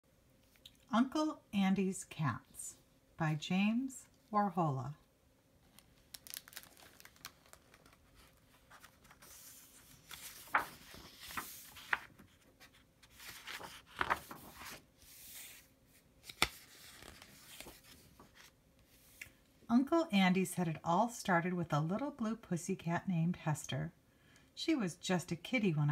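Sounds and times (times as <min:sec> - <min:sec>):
book pages turning: 0:05.7 - 0:19.4.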